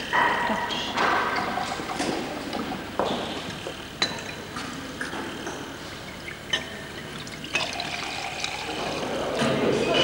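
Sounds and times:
wine pouring into glasses: 0:06.5 - 0:09.4.

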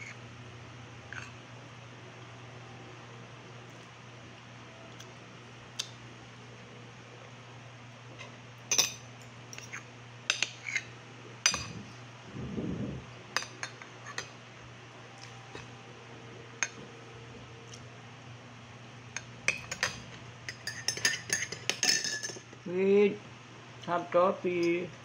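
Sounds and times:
faint steady hum: 0:00.0 - 0:25.0
cutlery clinking on a plate: 0:08.7 - 0:10.8, 0:19.5 - 0:22.5.

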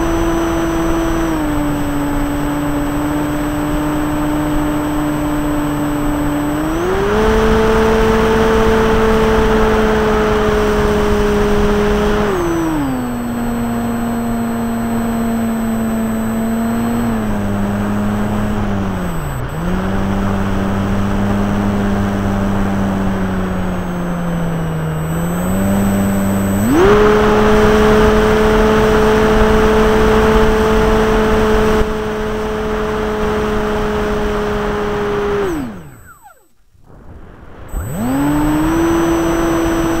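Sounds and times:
electric motor and propeller whining: 0:00.0 - 0:40.0.

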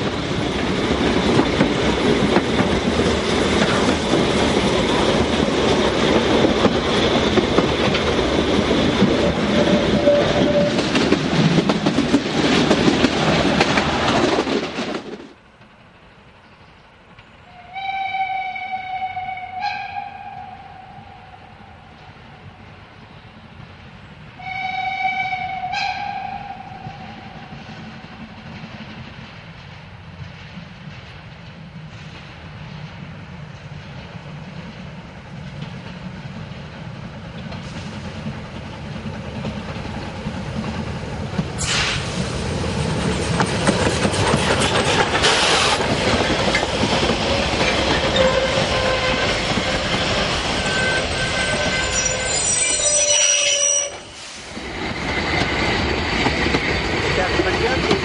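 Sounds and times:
coaches rolling on rails: 0:00.0 - 0:17.5, 0:26.4 - 0:58.0
steam locomotive passing: 0:00.0 - 0:58.0
steam locomotive whistle: 0:09.6 - 0:10.8, 0:17.4 - 0:22.0, 0:24.4 - 0:27.8, 0:48.1 - 0:49.5, 0:50.6 - 0:54.4.

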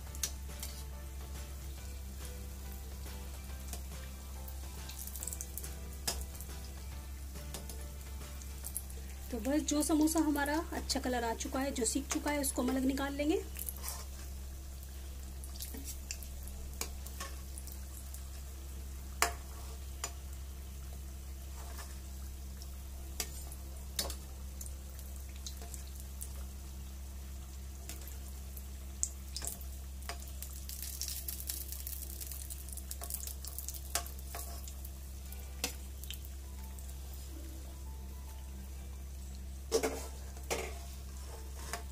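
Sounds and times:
crackles and pops of frying: 0:00.0 - 0:41.9
food deep-frying in hot oil: 0:00.0 - 0:41.9.

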